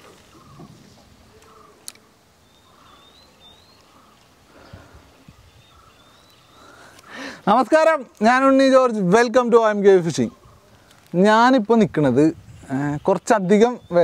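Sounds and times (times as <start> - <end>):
faint open-air ambience: 0.0 - 14.0
bird high whistled calls: 2.4 - 6.8.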